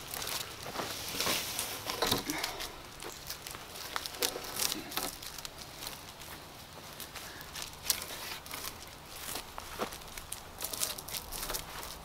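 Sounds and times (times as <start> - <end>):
wooden poles snapping and knocking: 0.0 - 5.6
dry leaves and sticks rustling: 0.0 - 12.0.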